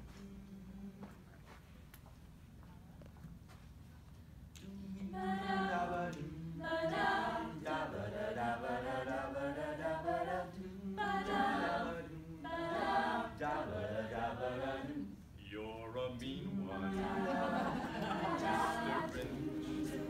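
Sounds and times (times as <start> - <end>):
a cappella group singing: 4.6 - 20.0.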